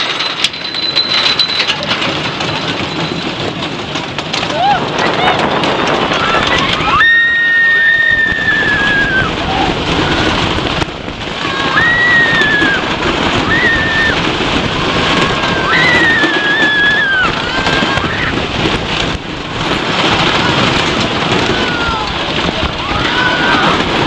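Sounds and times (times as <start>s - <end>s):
steady rushing noise: 0.0s - 24.0s
people screaming: 4.5s - 5.4s, 6.1s - 10.5s, 11.3s - 18.5s, 20.2s - 24.0s.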